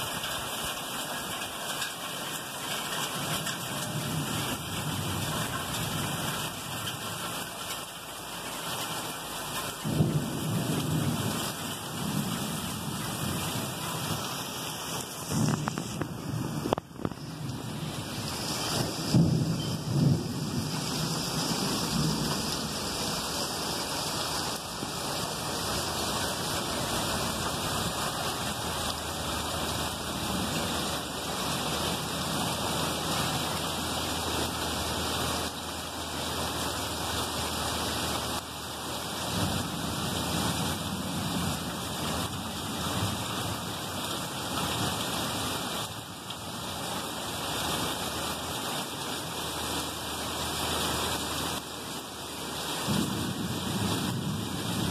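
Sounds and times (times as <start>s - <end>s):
heavy rain pouring: 0.0s - 54.9s
thunder rumbling: 9.8s - 35.8s, 52.8s - 54.9s.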